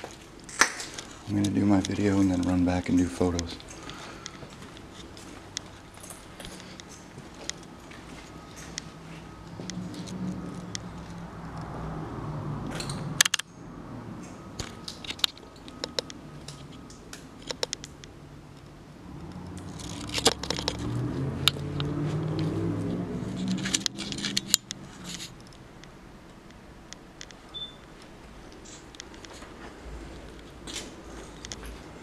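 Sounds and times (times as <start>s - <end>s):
sharp clicks and knocks: 12.6s - 13.6s, 14.2s - 22.6s, 23.2s - 29.5s.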